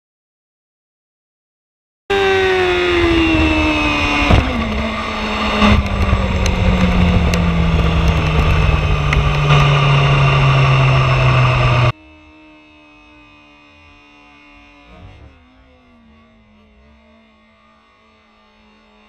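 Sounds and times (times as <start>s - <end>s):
motorcycle engine slowing: 2.1s - 19.0s
wind rush: 2.2s - 11.9s.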